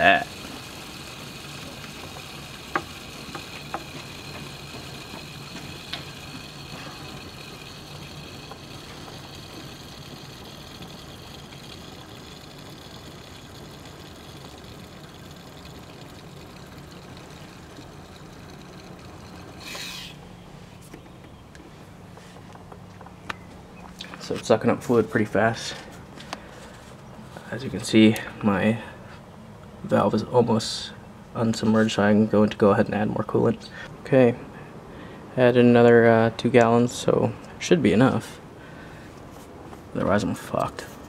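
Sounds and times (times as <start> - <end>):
hiss of flowing liquid: 0.0 - 20.2
low hum: 0.0 - 31.6.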